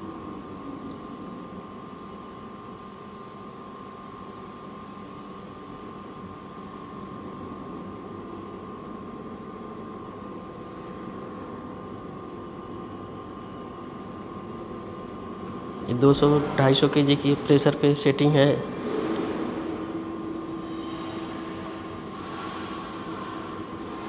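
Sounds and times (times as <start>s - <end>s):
electric motor and pump whining: 18.7s - 24.0s.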